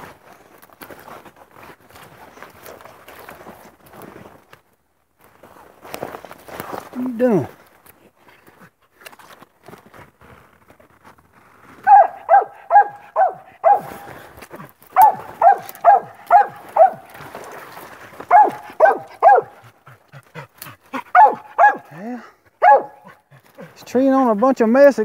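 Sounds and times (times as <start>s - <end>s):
dog barking short sharp barks: 11.8s - 14.1s, 15.0s - 17.1s, 18.3s - 19.5s, 21.1s - 22.0s, 22.6s - 23.1s.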